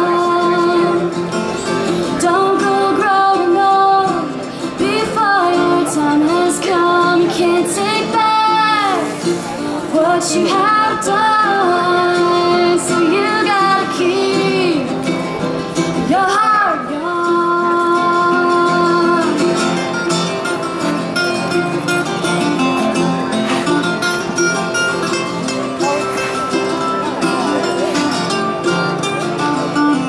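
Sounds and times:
girl singing: 0:00.0 - 0:01.1, 0:02.2 - 0:09.1, 0:09.9 - 0:15.0, 0:16.1 - 0:19.6
acoustic guitars: 0:00.0 - 0:30.0
mandolin: 0:00.0 - 0:30.0.

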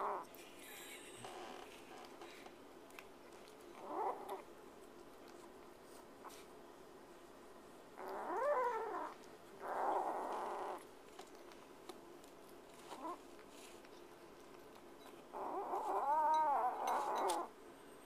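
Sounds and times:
kitten growling: 0:03.8 - 0:04.5, 0:08.0 - 0:10.9, 0:15.3 - 0:17.5.

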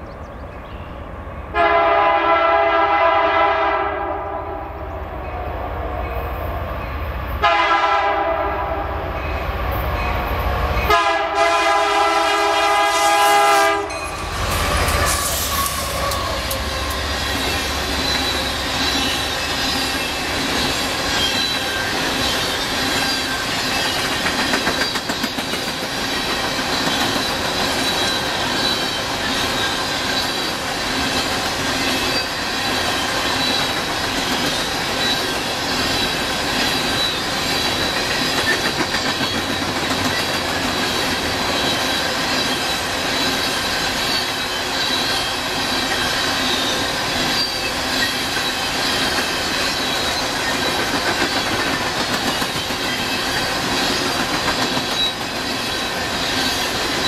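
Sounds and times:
train wheels clattering over rails: 0:13.9 - 0:57.0
high-pitched wheel squeal: 0:14.0 - 0:24.0.

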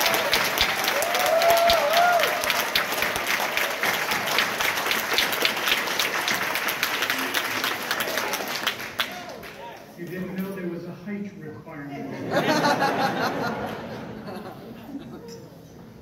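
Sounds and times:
crowd clapping: 0:00.0 - 0:10.0.

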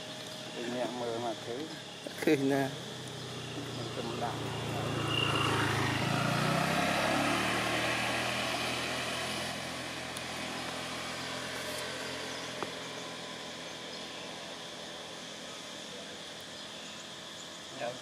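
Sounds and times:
vehicle engine passing: 0:02.2 - 0:15.5.

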